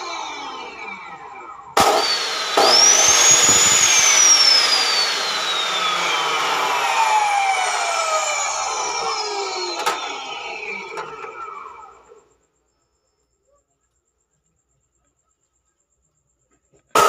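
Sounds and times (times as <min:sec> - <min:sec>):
cut-off saw motor whine: 0:00.0 - 0:12.3.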